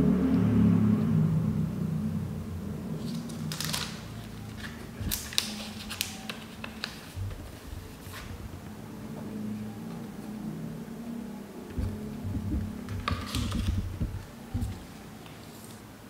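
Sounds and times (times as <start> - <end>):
faint low hum: 0.0 - 16.0
paper and plastic rustling: 3.0 - 8.6, 11.8 - 15.8.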